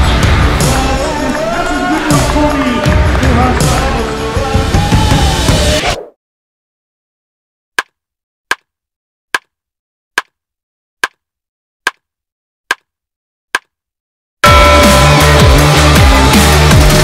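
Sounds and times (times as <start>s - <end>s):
drum-heavy electronic music: 0.0s - 5.8s, 14.4s - 17.0s.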